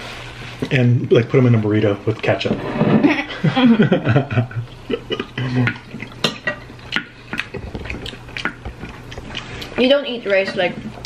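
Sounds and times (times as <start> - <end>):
spoons clinking on plates: 5.6 - 6.8.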